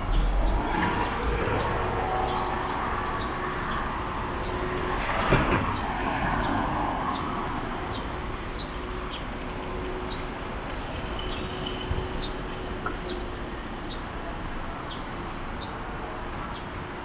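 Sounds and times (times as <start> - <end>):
traffic hum: 0.0 - 17.0
car passing close by: 0.1 - 3.3
small birds chirping: 7.8 - 14.2.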